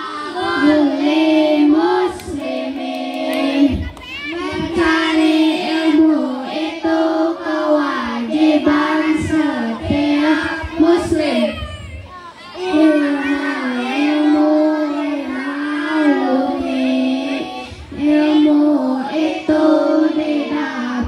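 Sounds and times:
boys singing in unison: 0.0s - 11.8s, 12.5s - 21.0s.

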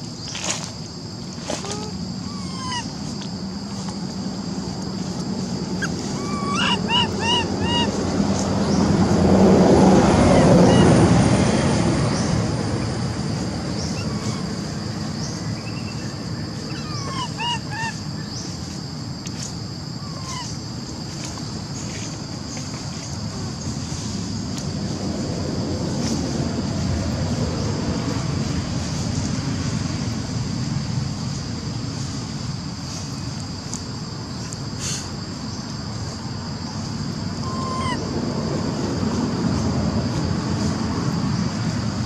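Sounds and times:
low rumbling noise: 1.1s - 34.4s
chirping calls: 1.8s - 2.9s, 5.8s - 8.1s, 10.2s - 11.0s, 13.7s - 18.6s, 37.4s - 38.0s.

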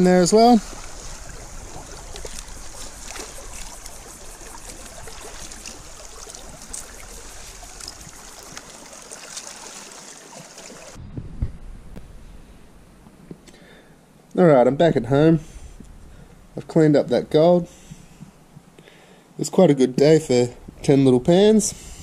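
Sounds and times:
creek water running: 0.0s - 11.0s.

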